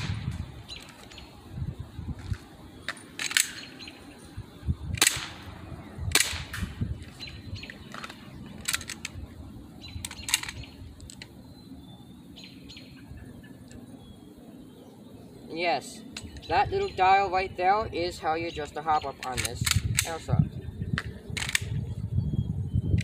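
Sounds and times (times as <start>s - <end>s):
airsoft pistol cracks and clicks: 3.2s - 3.7s, 4.9s - 5.4s, 6.1s - 6.7s, 19.2s - 20.3s, 21.0s - 21.8s.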